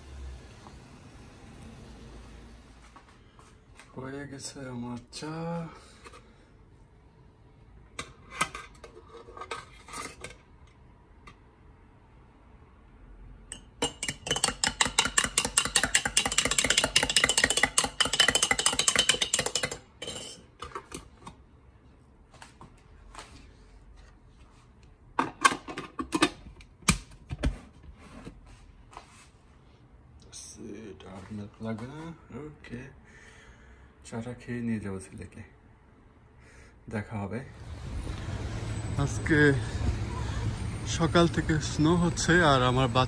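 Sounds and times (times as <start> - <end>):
teaspoon clinking against tin: 13.5 - 20.5
spoon stirring in ceramic mug: 13.5 - 21.0.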